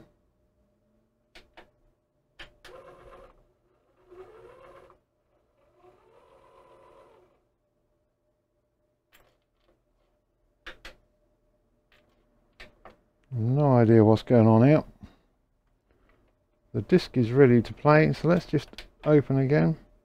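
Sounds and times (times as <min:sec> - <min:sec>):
disc changer motor whirring: 0:02.6 - 0:07.4.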